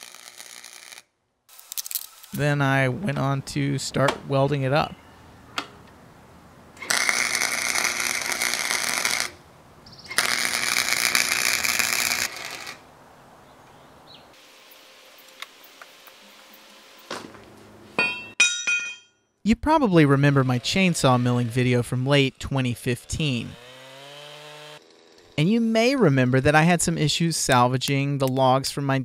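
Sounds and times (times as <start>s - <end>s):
welder crackling sizzle: 0.0s - 2.4s, 6.8s - 9.4s, 10.1s - 12.8s, 14.4s - 17.1s
steel pieces clanking on concrete: 18.0s - 19.1s.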